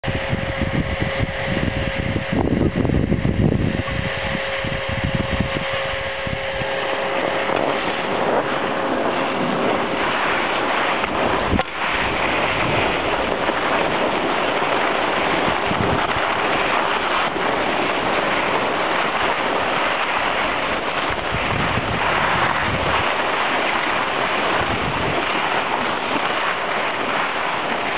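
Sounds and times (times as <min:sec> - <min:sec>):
wind on microphone: 0:00.0 - 0:27.9
skis sliding over snow: 0:06.6 - 0:27.9.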